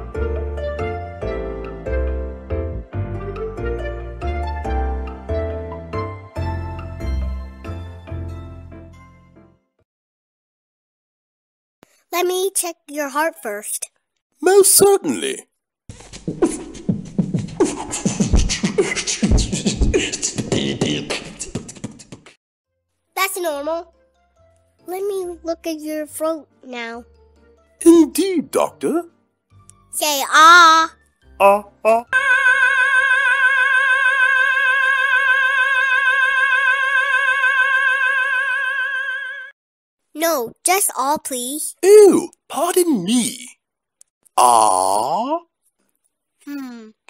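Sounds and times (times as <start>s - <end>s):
operatic singer holding high note: 31.4s - 39.5s.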